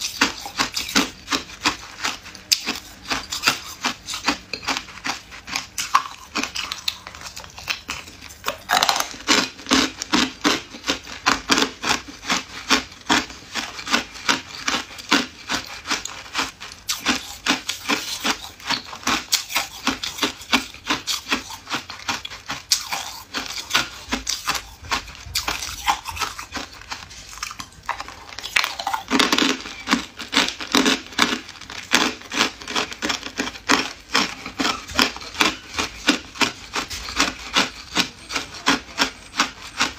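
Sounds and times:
ice cubes crunching: 0:00.0 - 0:39.9.

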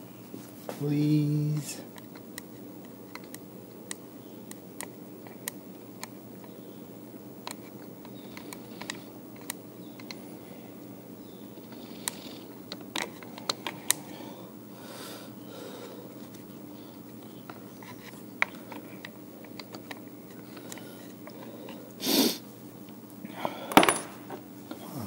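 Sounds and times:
steady low hum: 0:00.0 - 0:25.0
huffs of breath: 0:14.0 - 0:16.2, 0:23.3 - 0:23.8
tools clattering: 0:23.7 - 0:24.4.

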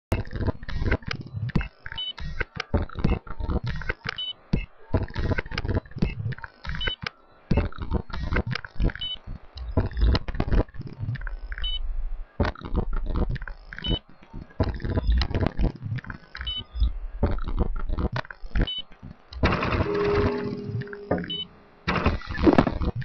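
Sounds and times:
electronic clicks: 0:00.1 - 0:11.8, 0:12.4 - 0:23.0
held electronic tone: 0:18.6 - 0:22.1
short high beeps: 0:19.7 - 0:21.6.

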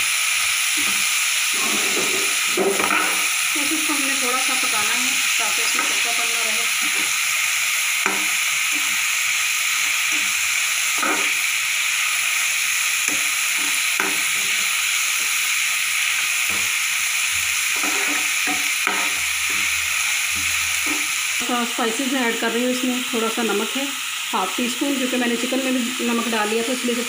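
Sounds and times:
vegetables sizzling in hot oil: 0:00.0 - 0:27.0
metal spoon scraping a pan: 0:00.8 - 0:03.3, 0:05.5 - 0:07.2, 0:13.0 - 0:15.4, 0:17.6 - 0:21.2.

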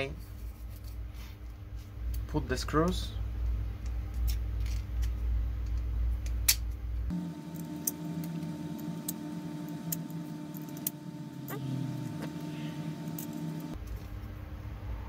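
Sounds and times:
low hum: 0:06.7 - 0:15.0.

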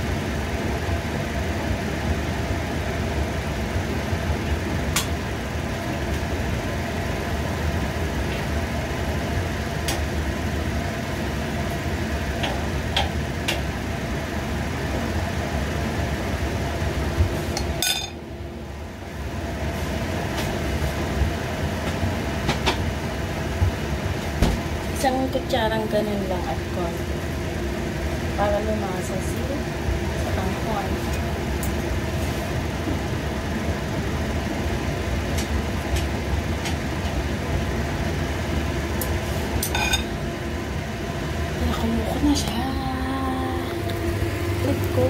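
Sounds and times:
extractor fan humming: 0:00.0 - 0:45.0
utensil clinking on frying pan: 0:17.8 - 0:18.2.

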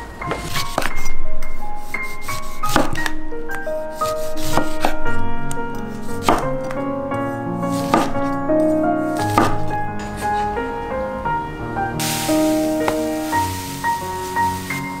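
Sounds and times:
knife cutting on wooden board: 0:02.0 - 0:03.2, 0:04.0 - 0:05.0, 0:06.0 - 0:06.5, 0:07.7 - 0:10.4.

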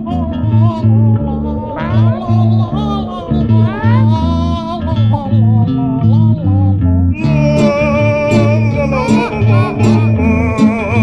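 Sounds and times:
guitar: 0:00.0 - 0:11.0
plucked bass line: 0:00.0 - 0:11.0
melody with sliding notes: 0:01.3 - 0:05.6, 0:07.2 - 0:11.0.

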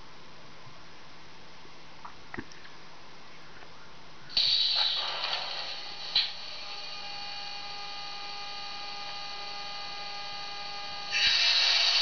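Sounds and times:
loud hissing: 0:04.3 - 0:07.0, 0:11.1 - 0:12.0
electric locomotive hum: 0:04.3 - 0:12.0.

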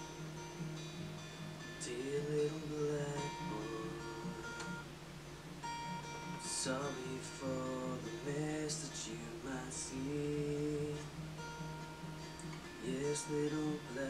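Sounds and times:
acoustic guitar playing: 0:00.0 - 0:14.0
man singing slow melody: 0:01.8 - 0:04.9, 0:06.3 - 0:11.2, 0:12.6 - 0:14.0.

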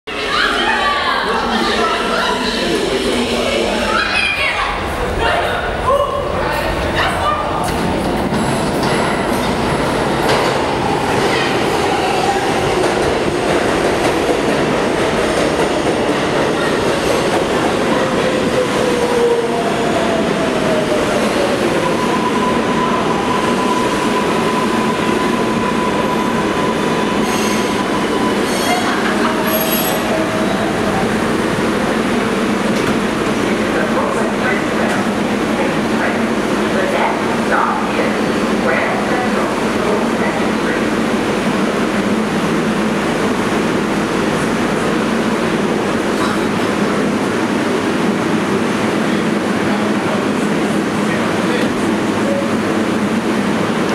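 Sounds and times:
subway train rumbling and rattling: 0:00.1 - 0:53.9
high-pitched train squeals: 0:21.6 - 0:30.2.

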